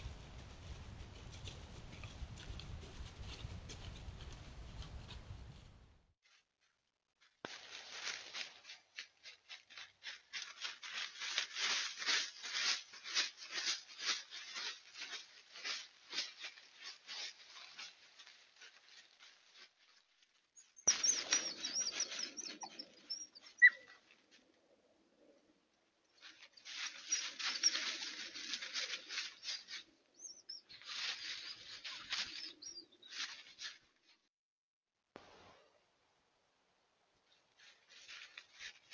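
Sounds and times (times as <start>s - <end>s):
dry leaves crunching under paws: 7.2s - 24.2s, 26.2s - 34.0s, 37.5s - 38.9s.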